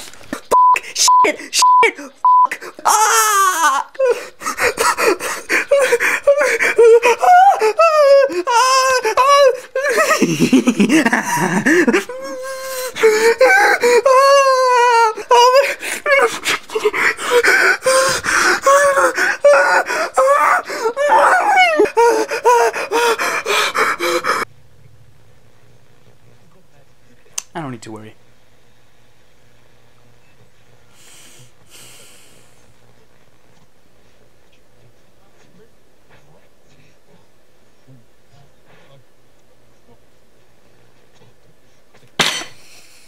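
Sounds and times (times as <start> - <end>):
man wailing and sobbing: 0.6 - 24.5
gasping breaths: 4.0 - 24.5.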